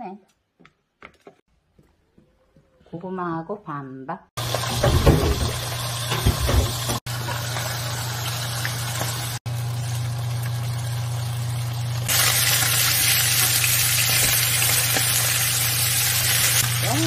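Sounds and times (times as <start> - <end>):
fish frying in pan: 4.4 - 17.0.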